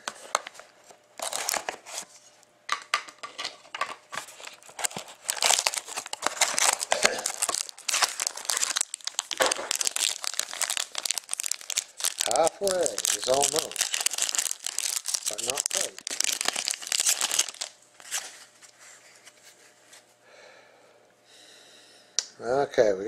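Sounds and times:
shrink-wrap crinkling and tearing: 1.2 - 2.1, 3.2 - 18.4
shiny wrapper tearing open: 4.8 - 18.2.

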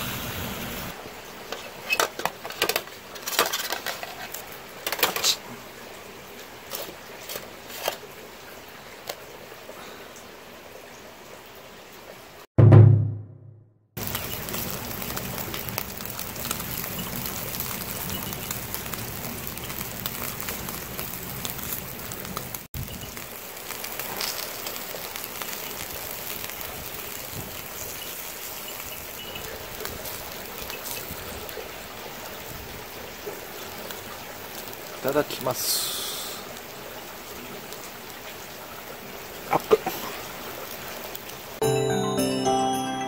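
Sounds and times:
meat sizzling on grill: 0.0 - 2.0, 14.0 - 38.3.

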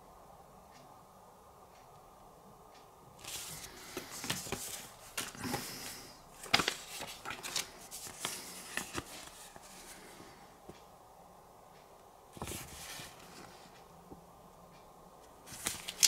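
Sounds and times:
packaging rustling and crinkling: 3.3 - 9.8.

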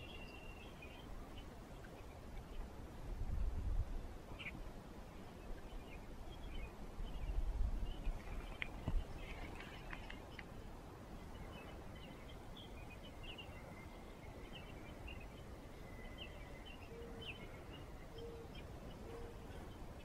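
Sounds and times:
bird chirps: 11.3 - 19.8.

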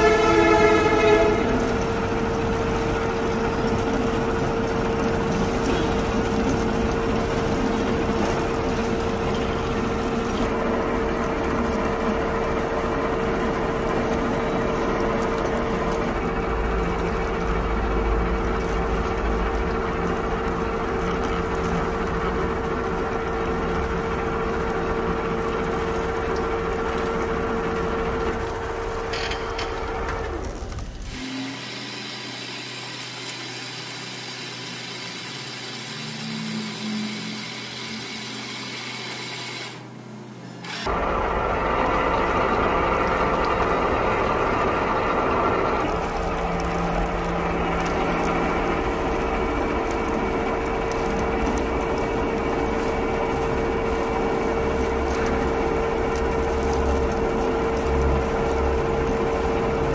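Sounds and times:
metal cutting noise: 29.1 - 39.8
lathe machine whine: 31.1 - 39.9, 40.6 - 59.9.

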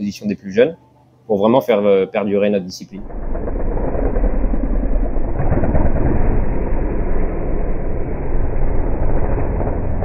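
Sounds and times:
motocross bike engines: 2.9 - 10.0.

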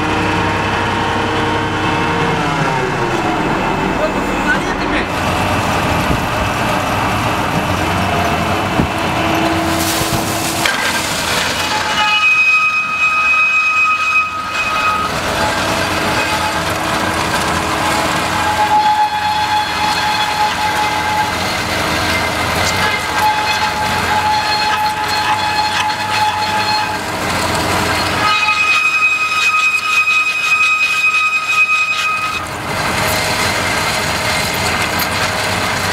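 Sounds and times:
drilling rig running: 0.0 - 35.9
high whining squeal: 8.6 - 32.5.

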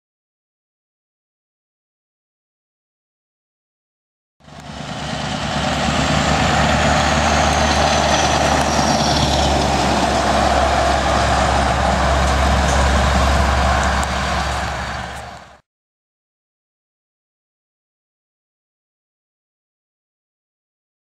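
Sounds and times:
diesel truck engine droning: 4.4 - 15.6.

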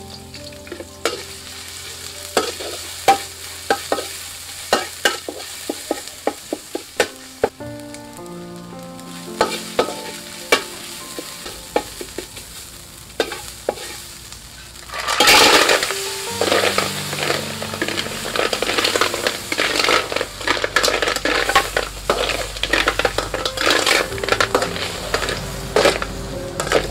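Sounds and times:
paste sizzling in oil: 0.0 - 26.9
snails sizzling and clattering: 0.0 - 26.9
metal spatula scraping wok: 0.1 - 7.5, 13.2 - 26.9.

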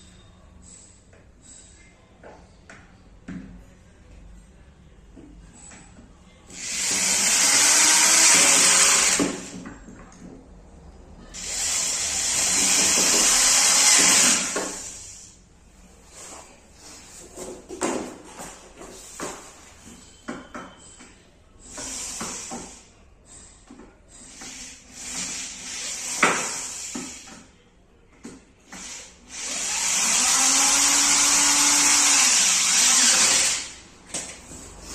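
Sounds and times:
cordless drill driving screws: 6.6 - 9.5, 11.4 - 15.2, 24.4 - 27.2, 28.7 - 33.8.

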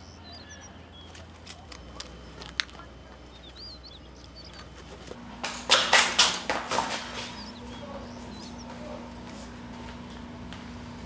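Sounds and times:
faint bird chirps: 0.0 - 4.8, 7.3 - 9.0
steady low hum: 0.0 - 11.0.

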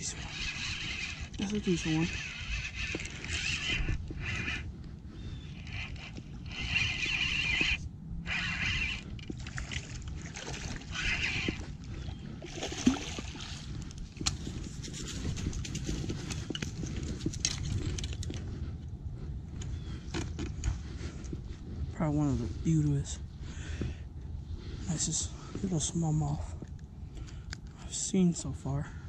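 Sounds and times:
fishing reel whirring: 0.0 - 18.4
fish splashing: 12.4 - 13.8.

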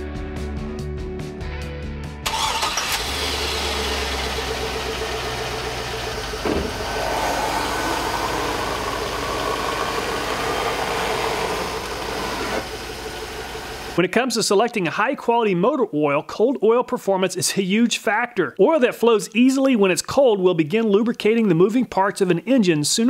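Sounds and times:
car engine running steadily: 2.9 - 14.0
short bump: 6.4 - 7.0.

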